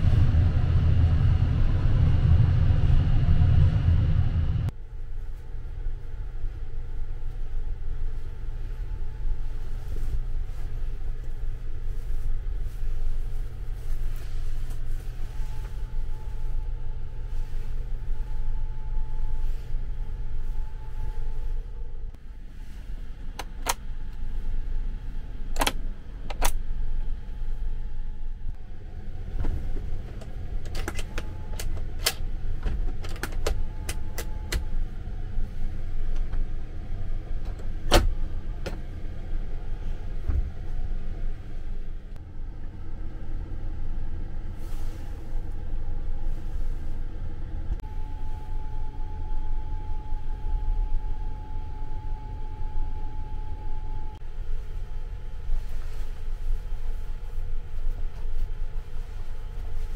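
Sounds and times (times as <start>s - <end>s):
train compartment rumble: 0.0s - 59.9s
faint steady tone: 4.7s - 23.1s, 39.1s - 59.9s.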